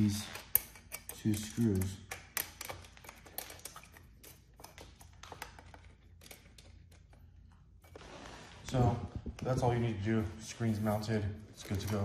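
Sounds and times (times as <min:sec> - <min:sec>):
allen key clicking in screw: 0:00.3 - 0:07.2.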